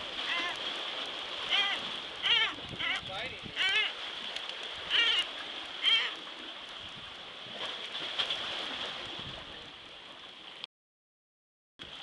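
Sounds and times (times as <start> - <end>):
surf and water washing: 0.0 - 10.7
seabird wavering cries: 0.2 - 0.6, 1.4 - 4.0, 4.8 - 6.2.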